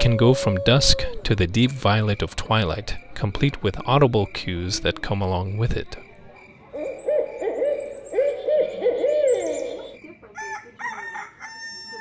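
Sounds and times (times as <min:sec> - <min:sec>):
owl hooting: 0:06.7 - 0:10.0.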